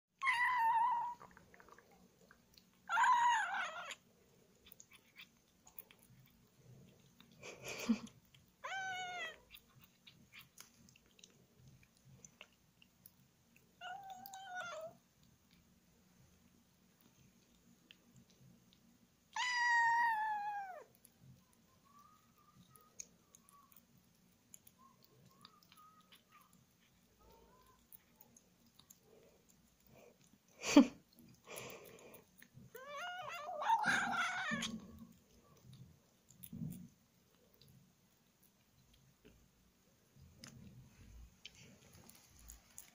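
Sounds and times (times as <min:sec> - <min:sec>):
kitten licking and chewing clicks: 0:00.9 - 0:02.9, 0:03.8 - 0:42.9
kitten meowing: 0:02.9 - 0:04.0, 0:08.6 - 0:09.6, 0:13.8 - 0:15.0, 0:19.3 - 0:20.9, 0:32.7 - 0:35.0.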